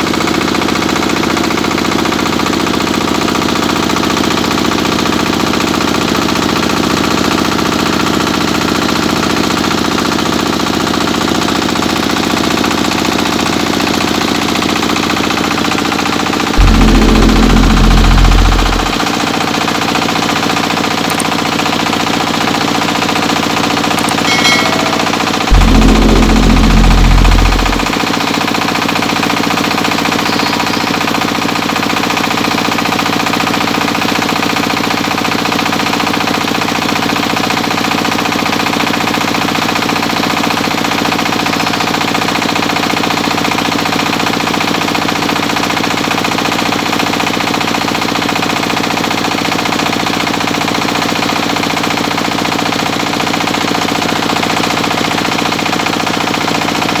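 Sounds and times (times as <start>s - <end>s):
diesel engine running under load: 16.6s - 19.0s, 25.5s - 28.0s.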